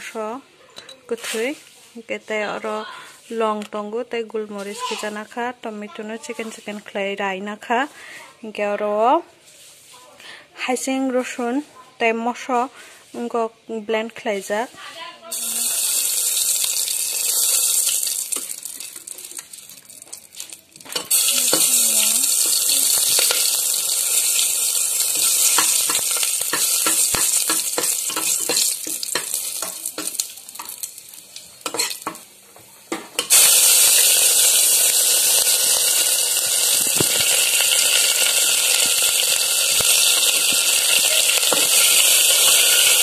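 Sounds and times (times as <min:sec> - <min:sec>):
hot oil sizzling and popping: 0:15.3 - 0:43.0
onions dropped into oil: 0:15.8 - 0:32.3, 0:32.9 - 0:43.0.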